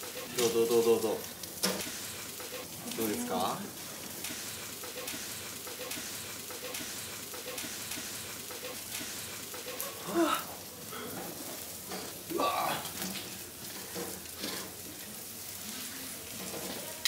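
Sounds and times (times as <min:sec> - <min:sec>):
grill sizzling and crackling: 0:00.0 - 0:17.0
person exclaiming: 0:10.0 - 0:10.6, 0:12.3 - 0:12.9.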